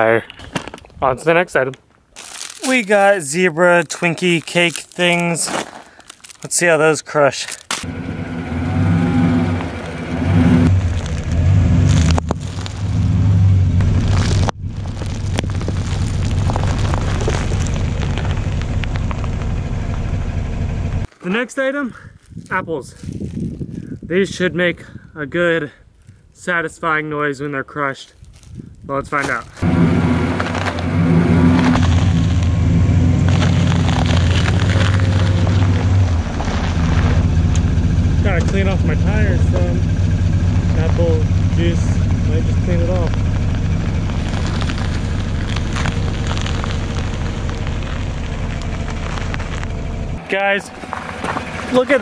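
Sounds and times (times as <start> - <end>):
gravel and wrappers crackling: 0.0 - 7.9, 9.2 - 52.0
tire rolling on gravel: 0.1 - 24.5, 28.2 - 52.0
truck engine running: 7.9 - 21.1, 29.6 - 52.0.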